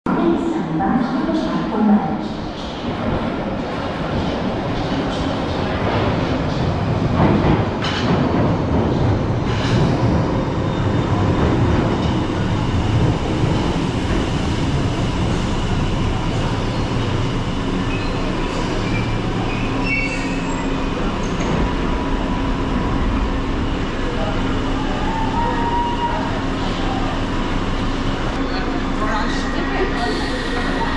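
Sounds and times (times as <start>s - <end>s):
train wheels rushing on rails: 2.5s - 30.9s.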